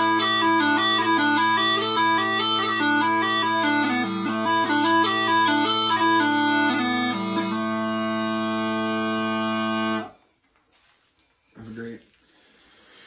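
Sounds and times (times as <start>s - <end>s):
bagpipe drones: 0.0s - 10.2s
small pipes chanter melody: 0.0s - 10.3s.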